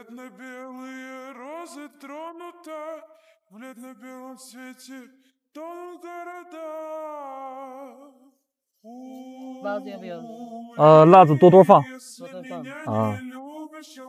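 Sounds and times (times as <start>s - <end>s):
person singing unaccompanied: 9.0s - 13.3s.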